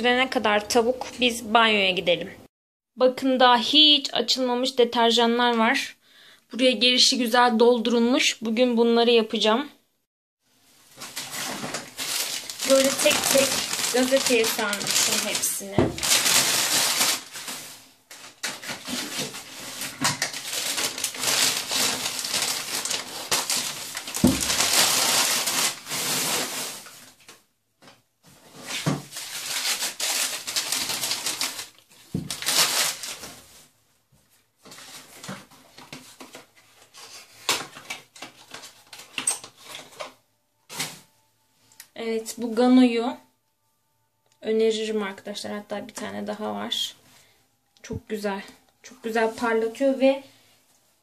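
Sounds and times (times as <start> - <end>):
newspaper rustling and crinkling: 10.8 - 27.4, 28.3 - 33.8, 34.5 - 40.1.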